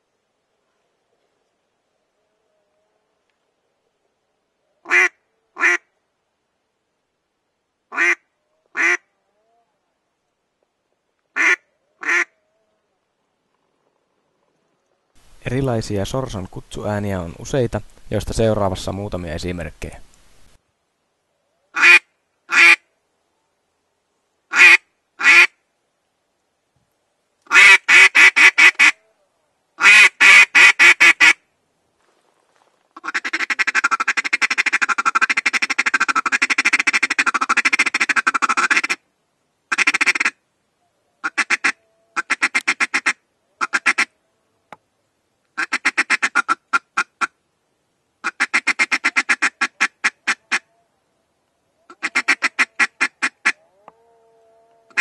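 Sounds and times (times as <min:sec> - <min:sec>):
duck call quacks and chatter: 0:11.4 - 0:12.3, 0:21.8 - 0:22.8, 0:24.5 - 0:25.5, 0:27.5 - 0:29.0, 0:29.8 - 0:31.4, 0:33.0 - 0:39.0, 0:39.7 - 0:40.4, 0:41.2 - 0:44.1, 0:45.6 - 0:47.3, 0:48.2 - 0:50.6, 0:51.9 - 0:53.6.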